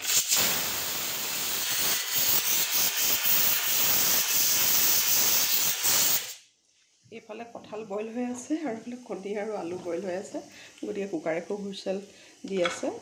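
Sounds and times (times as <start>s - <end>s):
pressure cooker steam hissing: 0.0s - 6.4s.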